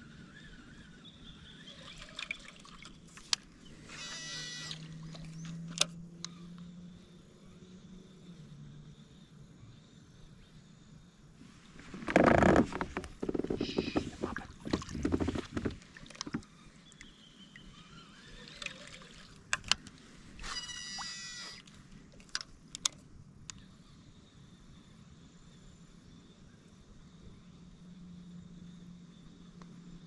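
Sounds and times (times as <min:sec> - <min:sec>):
water splashing around kayak: 0:12.0 - 0:16.6.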